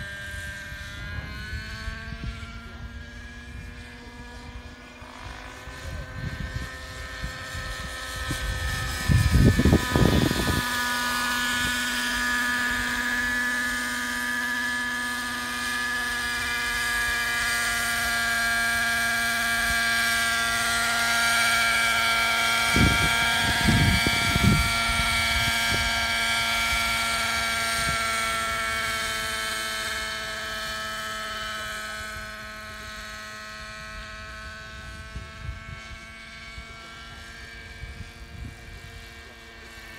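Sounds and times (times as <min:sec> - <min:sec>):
wind rumble on microphone: 0:00.0 - 0:14.6, 0:21.5 - 0:28.8, 0:32.0 - 0:39.9
model helicopter engine whine: 0:00.0 - 0:39.9.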